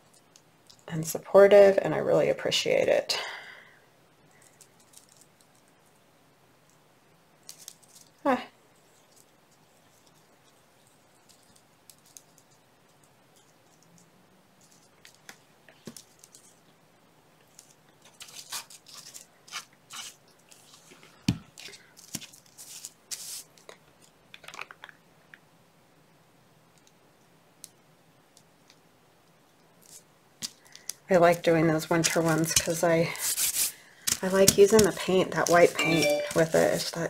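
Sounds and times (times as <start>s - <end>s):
paper rustling: 31.8s - 37.0s.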